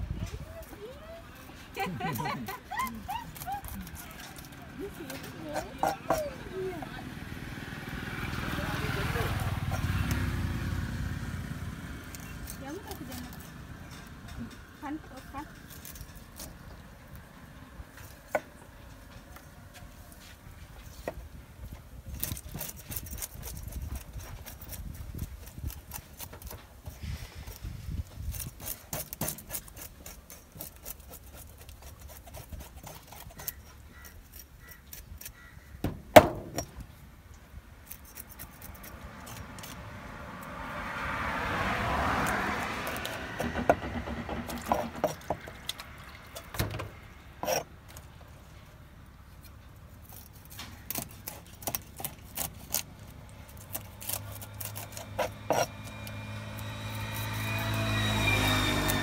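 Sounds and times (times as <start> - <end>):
knife scraping fish scales: 2.0 - 6.4, 11.9 - 14.6, 15.2 - 16.8, 22.1 - 35.8, 37.8 - 40.5, 42.2 - 43.6, 44.4 - 46.6, 47.4 - 48.1, 49.3 - 59.0.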